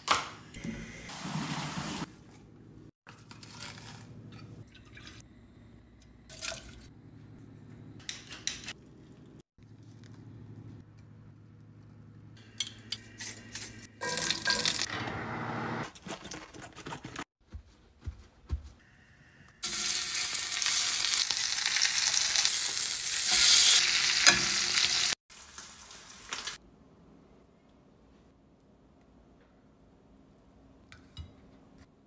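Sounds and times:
food sizzling in frying pan: 0:19.6 - 0:26.6.

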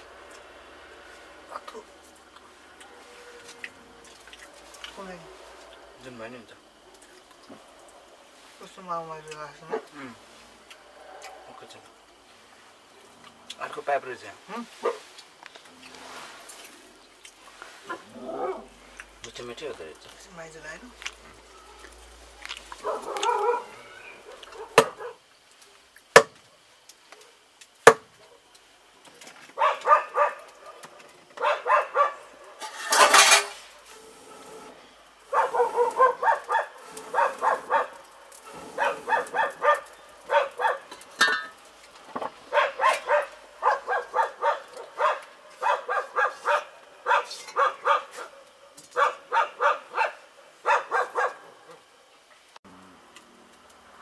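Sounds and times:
dog barking: 0:09.6 - 0:10.0, 0:14.8 - 0:15.1, 0:22.7 - 0:25.2, 0:29.6 - 0:32.6, 0:35.3 - 0:41.0, 0:42.5 - 0:51.9
sharp knocks: 0:26.2 - 0:26.4, 0:27.9 - 0:28.1.

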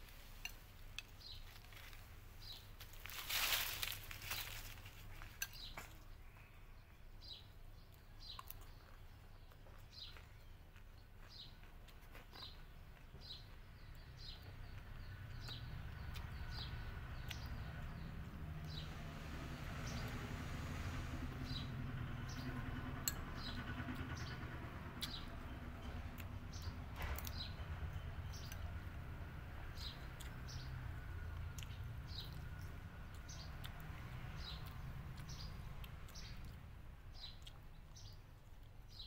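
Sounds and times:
bird chirping: 0:00.0 - 0:39.0.

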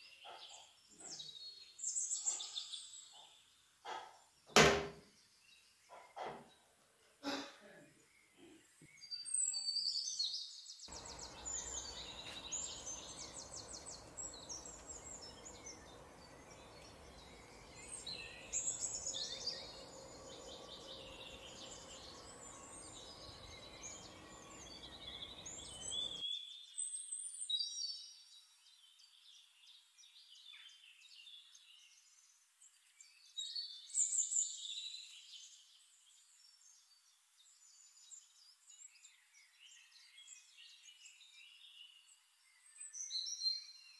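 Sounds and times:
small birds chirping: 0:00.0 - 0:04.5, 0:05.1 - 0:43.9
steady background hiss: 0:10.9 - 0:26.2.

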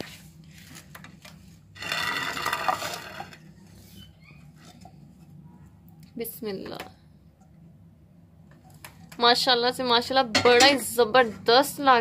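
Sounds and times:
steady low hum: 0:00.0 - 0:12.0
spatula scraping pan: 0:01.7 - 0:04.8.

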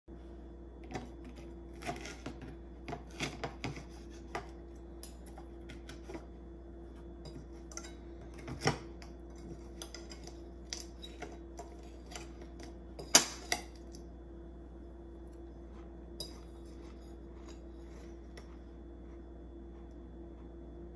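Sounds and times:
low hum: 0:00.1 - 0:20.9
knife and fork scraping a plate: 0:01.2 - 0:06.3, 0:07.2 - 0:14.0, 0:16.2 - 0:18.6.

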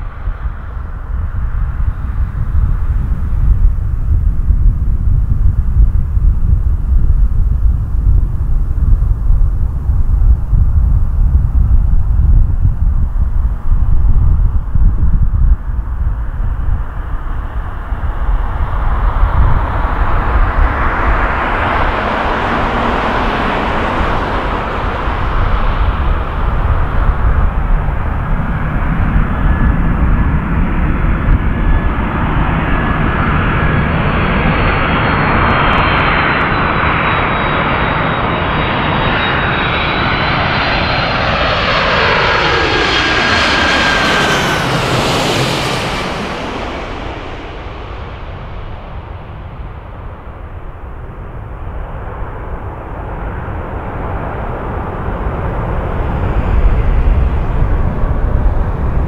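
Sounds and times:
high-pitched engine whine: 0:00.0 - 0:59.0
jet engines roaring: 0:15.6 - 0:59.0.

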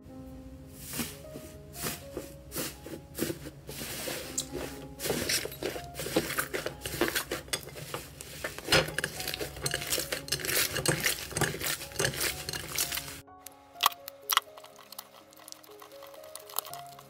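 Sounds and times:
slime crackling and popping: 0:08.5 - 0:17.0.

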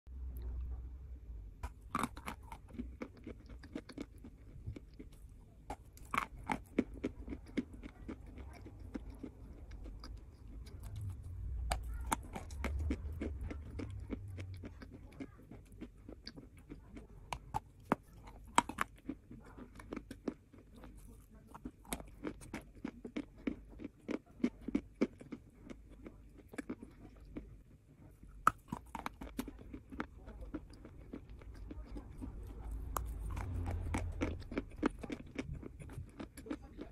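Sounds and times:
chalk crunching while chewed: 0:01.6 - 0:36.9
low rumble: 0:08.8 - 0:14.9, 0:30.7 - 0:36.2.

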